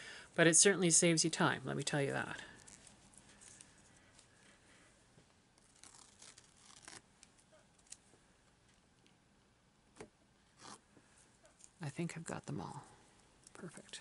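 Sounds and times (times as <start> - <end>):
masking tape peeling off paper: 5.5 - 8.1.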